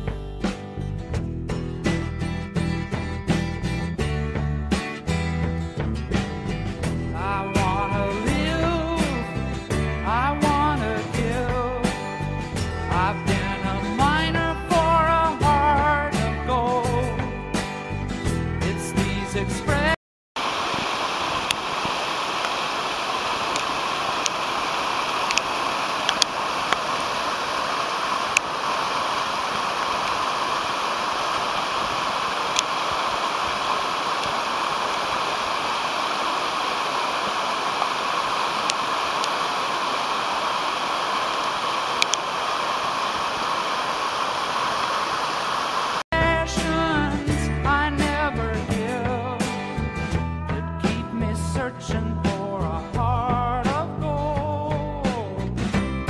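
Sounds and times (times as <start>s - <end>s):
mountain torrent rushing over boulders: 20.4s - 46.0s
faint water splashing ticks: 21.4s - 27.0s, 28.1s - 30.2s, 32.4s - 33.2s, 37.4s - 40.6s, 41.2s - 43.3s.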